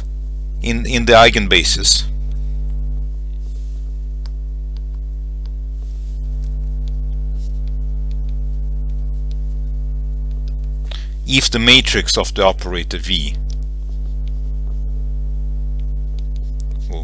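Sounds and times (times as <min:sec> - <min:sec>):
low electrical mains hum: 0:00.0 - 0:17.0.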